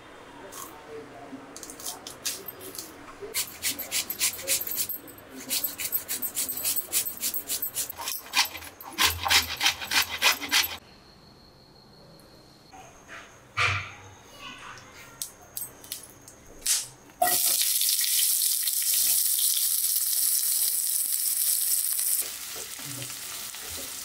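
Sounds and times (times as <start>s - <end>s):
metal grater rasping over food: 3.3s - 10.8s.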